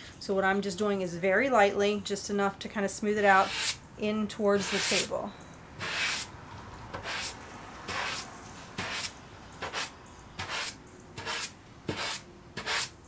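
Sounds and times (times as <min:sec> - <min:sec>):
sandpaper rubbing on wood: 0:03.4 - 0:03.8, 0:04.6 - 0:05.1, 0:05.8 - 0:06.3, 0:07.0 - 0:13.0.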